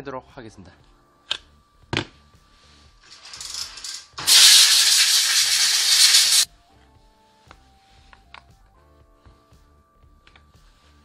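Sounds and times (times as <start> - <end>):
compressed air hissing: 3.1 - 6.5.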